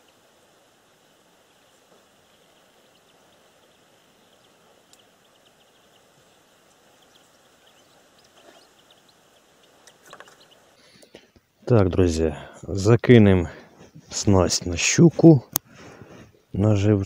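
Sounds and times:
soft hiss: 0.0 - 17.0
faint high-pitched ticks: 1.9 - 6.0.

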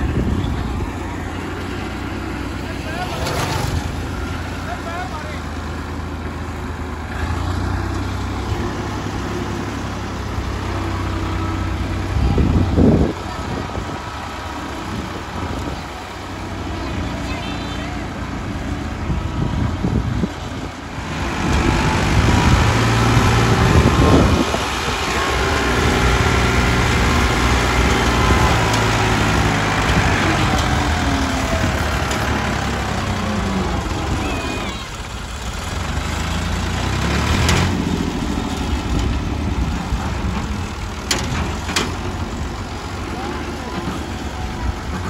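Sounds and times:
tractor diesel engine labouring: 0.0 - 45.0.

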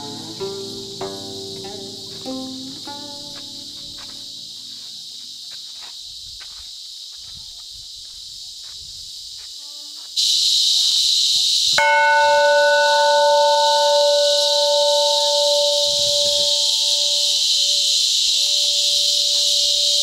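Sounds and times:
insects buzzing: 0.0 - 20.0
metal bell ringing: 11.8 - 17.4.

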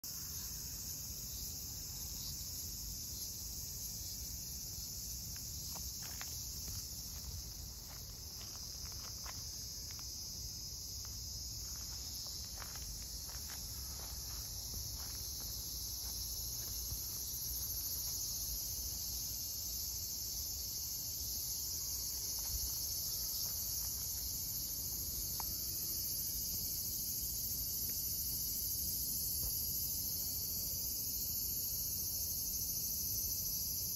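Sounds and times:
crickets chirping: 0.0 - 33.9.

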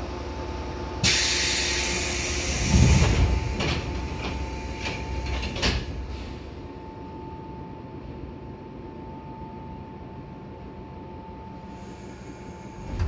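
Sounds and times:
compressed air hiss: 1.0 - 3.0
train doors thudding shut: 2.4 - 6.2, 12.8 - 13.0.

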